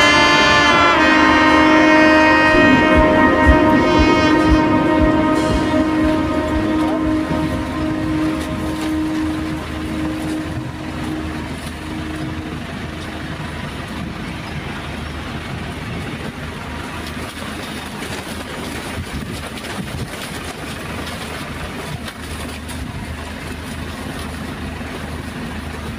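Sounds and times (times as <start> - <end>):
broad rushing noise: 0.0 - 17.4
diesel machinery engine drone: 0.0 - 18.8, 20.7 - 25.9.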